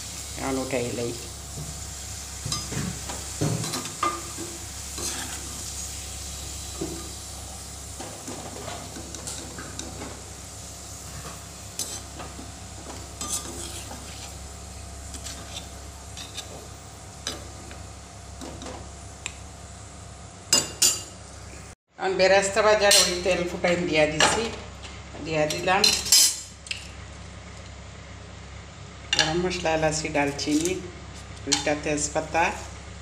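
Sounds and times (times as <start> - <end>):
onions sizzling in hot oil: 0.0 - 21.6
metal skimmer scraping a pan: 2.4 - 7.2, 11.0 - 14.5, 15.1 - 17.4.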